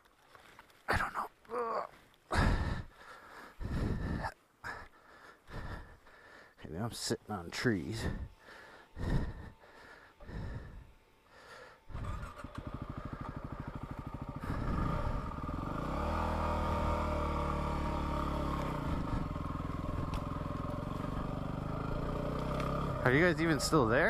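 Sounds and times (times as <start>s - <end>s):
motorcycle engine starting: 2.4s - 4.2s, 7.9s - 24.0s
motorcycle engine idling: 7.8s - 24.0s
motorcycle engine revving: 11.6s - 24.0s
motorcycle pulling away: 11.9s - 24.0s.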